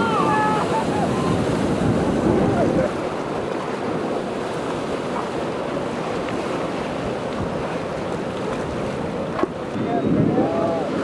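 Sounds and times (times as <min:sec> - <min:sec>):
ocean waves breaking: 0:00.0 - 0:11.0
wind buffeting microphone: 0:00.0 - 0:11.0.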